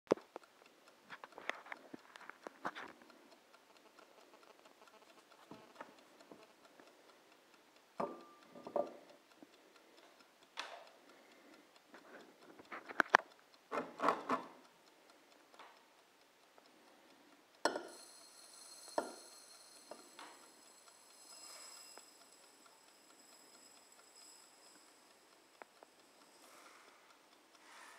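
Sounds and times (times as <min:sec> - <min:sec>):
sugar pouring into glass: 0:17.9 - 0:20.0.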